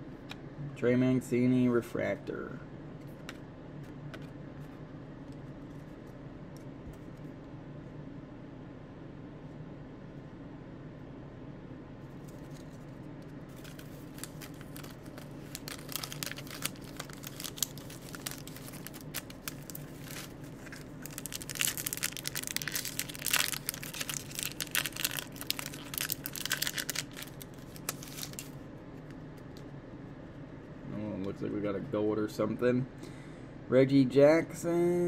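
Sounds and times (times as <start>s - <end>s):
cards shuffling: 12.2s - 29.5s
foil wrapper tearing and crinkling: 13.5s - 28.6s.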